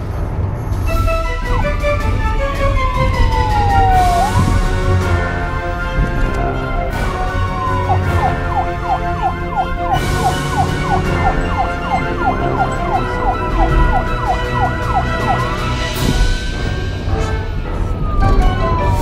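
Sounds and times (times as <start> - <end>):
police siren sweeps: 1.1 - 19.0.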